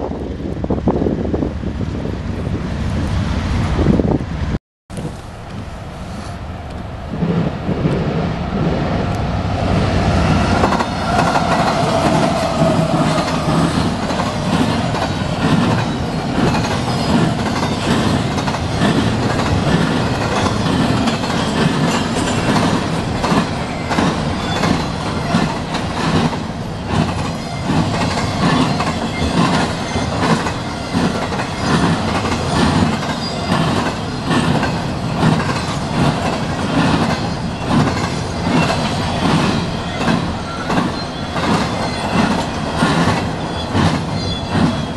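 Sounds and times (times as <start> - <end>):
diesel locomotive engines: 0.0 - 44.9
freight cars running noise: 0.0 - 44.9
wheels clicking over rail joints: 10.5 - 44.9.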